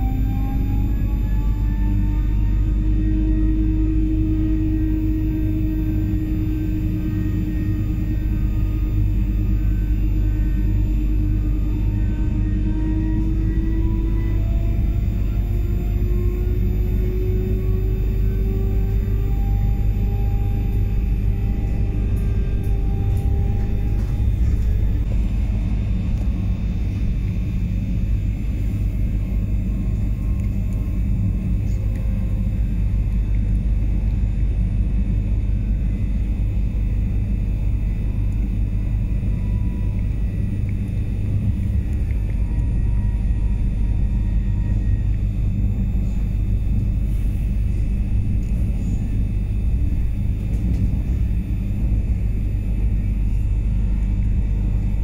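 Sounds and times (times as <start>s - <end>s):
train wheels rumbling on rail: 19.6s - 27.6s.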